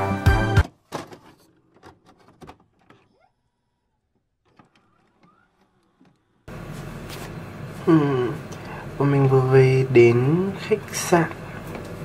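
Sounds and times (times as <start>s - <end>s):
background music: 0.0s - 0.7s.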